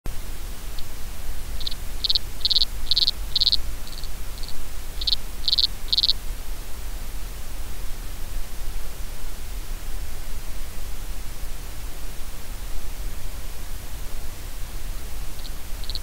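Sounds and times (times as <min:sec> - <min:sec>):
low hiss and rumble: 0:00.1 - 0:16.0
insect chirping underwater: 0:01.6 - 0:06.2, 0:15.4 - 0:16.0.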